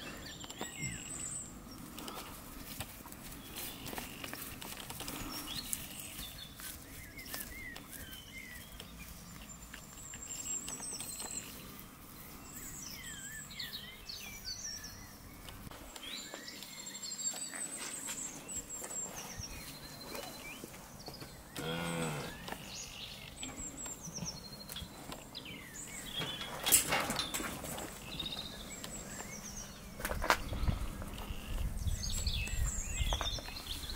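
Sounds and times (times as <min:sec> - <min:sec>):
small birds chirping: 0:00.0 - 0:33.9
calf mooing: 0:21.6 - 0:22.4.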